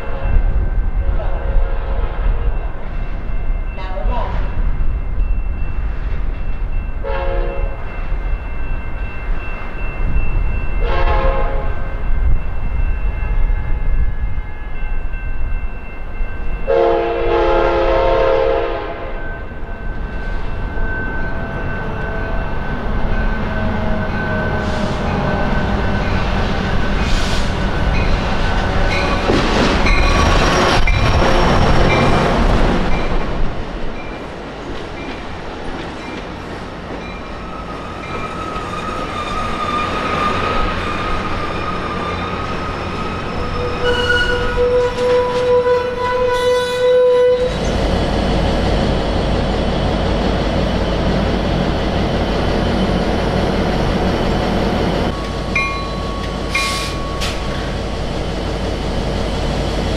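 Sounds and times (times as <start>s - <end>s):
train wheels on rails: 0.0s - 59.9s
locomotive horn: 7.0s - 7.8s, 10.8s - 11.8s, 16.7s - 19.2s, 43.5s - 47.7s
locomotive engine passing: 17.2s - 59.9s.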